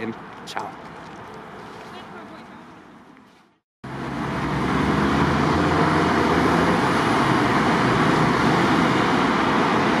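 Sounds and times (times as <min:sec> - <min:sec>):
cars driving past: 0:03.8 - 0:10.0.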